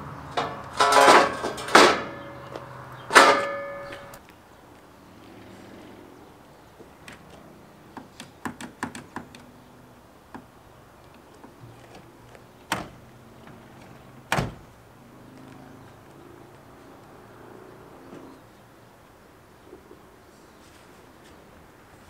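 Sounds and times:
truck door thudding shut: 12.7 - 13.0, 14.3 - 14.7.

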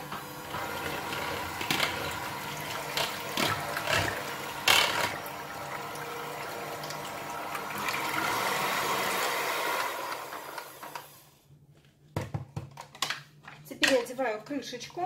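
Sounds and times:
electric hand mixer whirring: 0.0 - 11.3.

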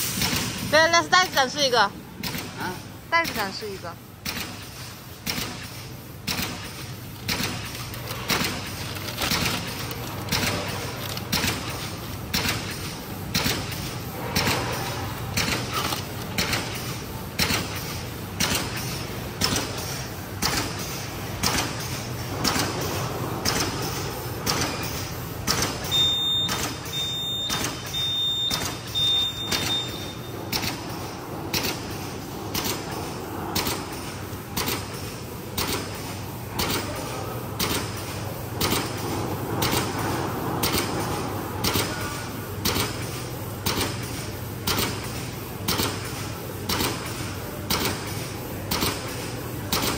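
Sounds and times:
low machine hum: 5.8 - 44.4
packaging machine clacking: 6.2 - 19.8, 21.4 - 35.0
short high beeps: 25.9 - 30.3.

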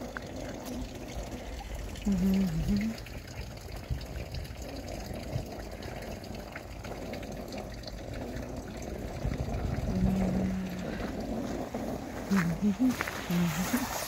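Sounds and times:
plastic sled scraping on snow: 10.8 - 14.0.

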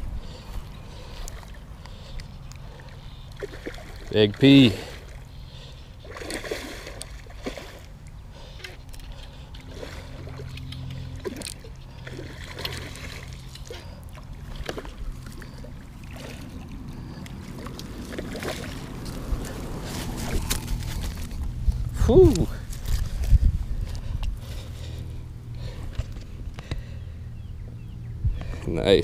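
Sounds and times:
steady low hum: 0.0 - 29.0
fish splashing in water: 0.9 - 21.3
fishing rod and line clicks: 8.6 - 13.8.

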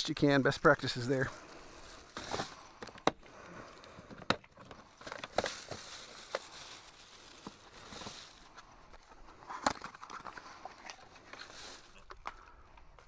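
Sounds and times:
clicks and knocks on plastic: 3.9 - 5.4.

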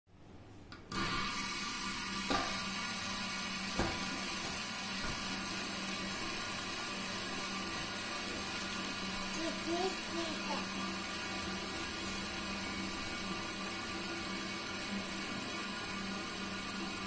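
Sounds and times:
fidget spinners whirring on glass: 8.9 - 11.0.

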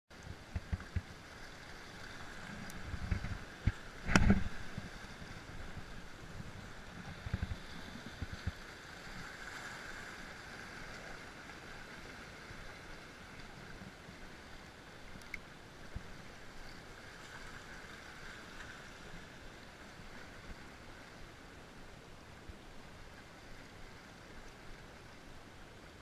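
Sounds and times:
waves lapping against rocks: 0.2 - 21.8
wind thumping on microphone: 2.8 - 8.6.

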